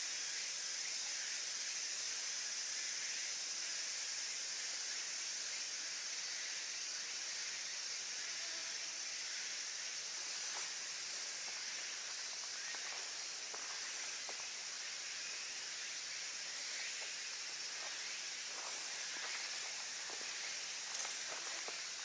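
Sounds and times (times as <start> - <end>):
cicada chorus hissing: 0.0 - 22.0
faint ticks: 20.8 - 21.9.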